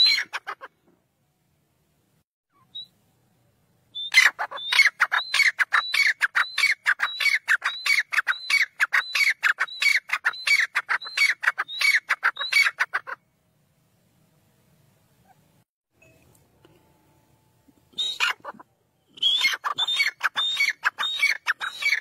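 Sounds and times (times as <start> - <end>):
francolin calling: 17.9 - 22.0.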